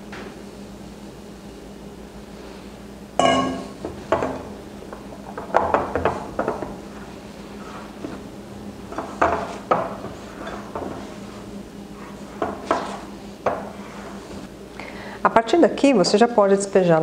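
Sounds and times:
faint steady hum: 0.0s - 17.0s
sharp ringing clink: 3.2s - 3.8s.

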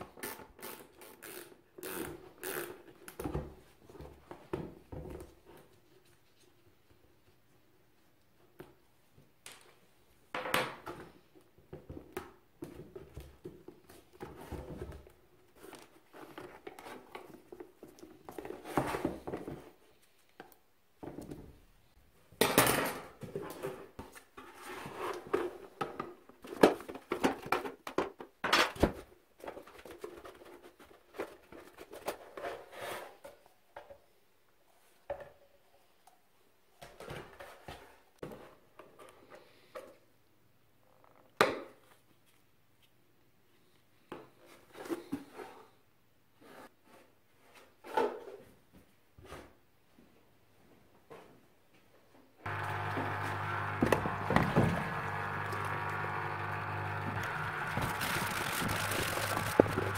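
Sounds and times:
plastic parts knocking and scraping: 52.5s - 59.9s.

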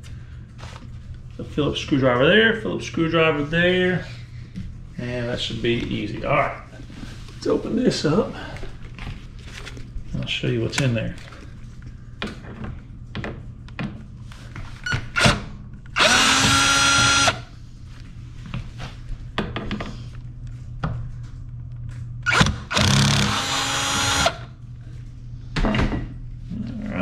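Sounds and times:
cordless drill motor whine: 16.0s - 17.5s, 22.2s - 24.5s.

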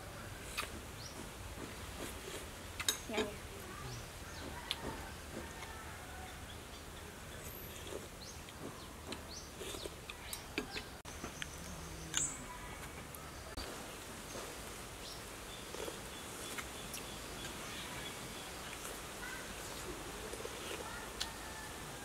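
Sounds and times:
outdoor background noise: 0.0s - 22.0s
birds chirping: 0.1s - 1.4s, 2.2s - 22.0s.

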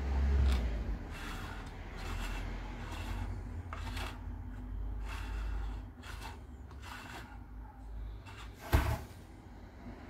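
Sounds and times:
plastic bowl scraping on wood: 0.4s - 7.5s, 8.2s - 9.1s.

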